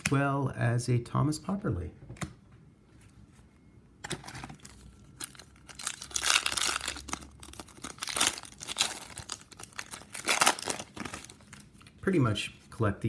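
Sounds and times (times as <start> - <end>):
wrapper tearing and crinkling: 4.6 - 11.9.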